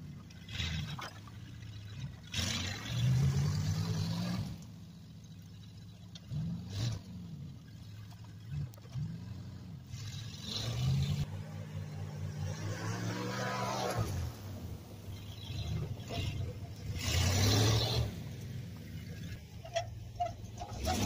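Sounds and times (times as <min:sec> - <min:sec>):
truck engine revving: 0:02.0 - 0:05.6, 0:06.2 - 0:21.0.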